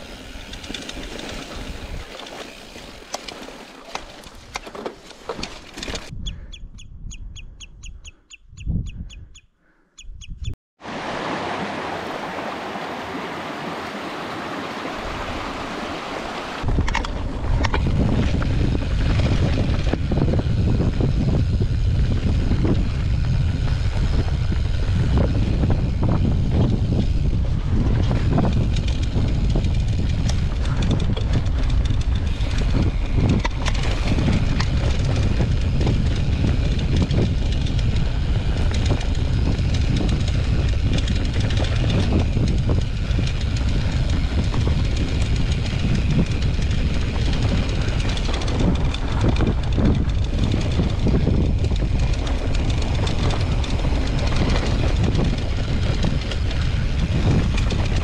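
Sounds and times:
bike trail rumble: 0.0 - 58.0
wind on microphone: 5.8 - 58.0
rapid high ticks: 28.4 - 58.0.

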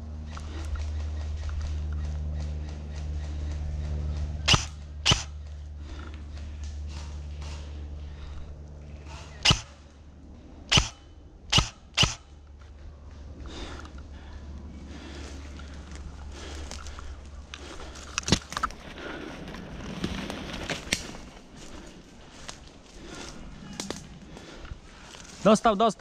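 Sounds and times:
airsoft gun shots: 4.5 - 5.4, 9.4 - 9.8, 10.7 - 12.3.

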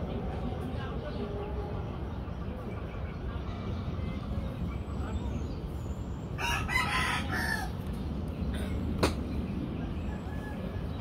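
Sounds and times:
rooster crowing: 6.4 - 7.8.

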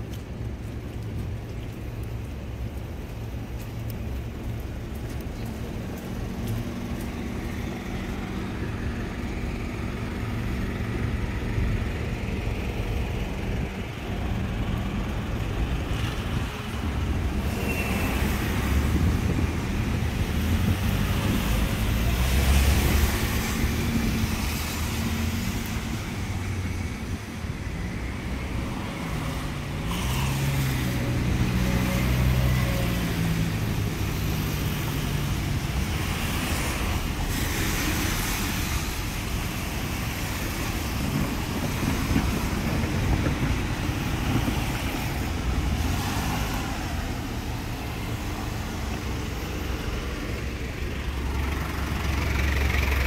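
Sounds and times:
vehicles passing: 0.0 - 53.0
engines running: 41.1 - 53.0.

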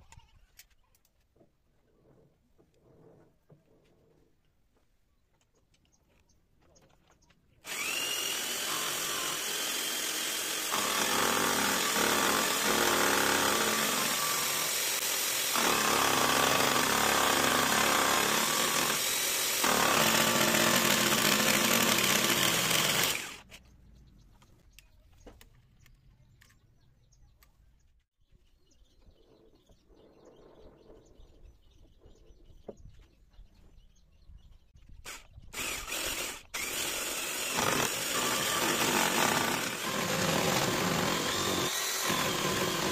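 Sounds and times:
power tool motor whining: 7.6 - 23.5, 35.1 - 42.9.

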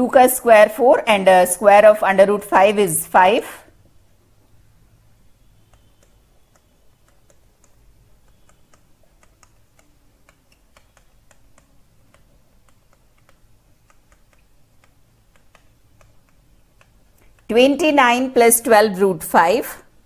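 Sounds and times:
low steady hum: 0.0 - 20.0
stylus tapping on tablet: 5.6 - 17.5.

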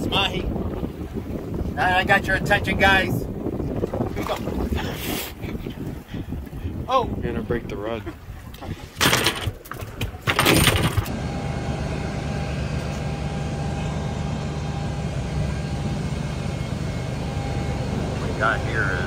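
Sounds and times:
wind buffeting microphone: 0.0 - 11.1
machinery hum: 11.1 - 19.0.

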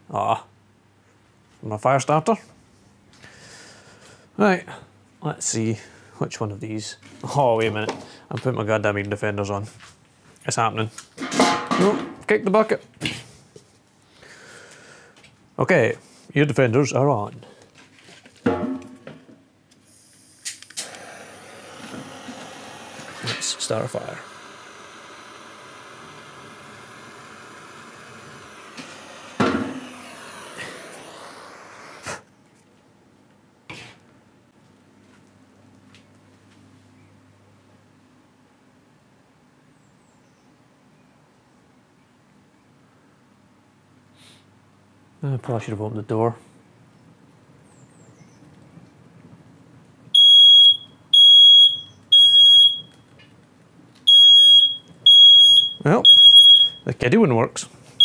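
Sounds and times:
gas torch hissing: 19.8 - 32.3
smoke alarm beeping: 21.6 - 31.9, 50.2 - 53.0, 54.1 - 56.9.

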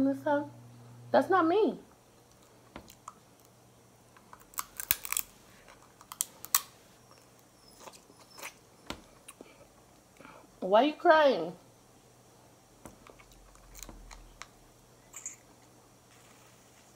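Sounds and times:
crab shell cracking between teeth: 4.2 - 6.7.

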